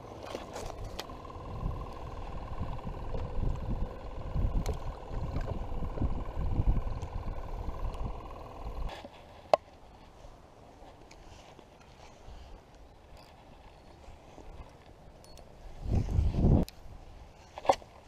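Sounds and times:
faint steady hum: 0.0 - 18.0
wind rumble on microphone: 0.6 - 8.9, 15.6 - 17.5.

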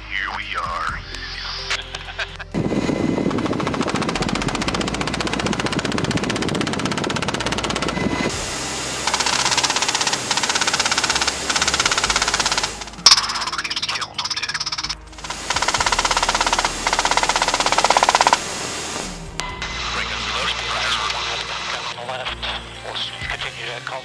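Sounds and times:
machine gun firing bursts: 3.3 - 8.2, 9.0 - 18.4.

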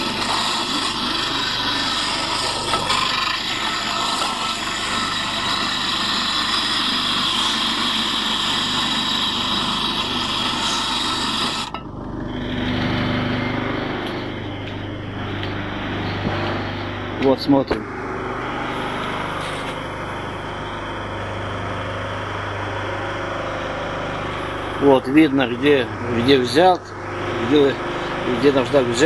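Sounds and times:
metal grinding on abrasive stone: 0.0 - 13.1, 18.4 - 20.8
low hum: 9.4 - 29.0.

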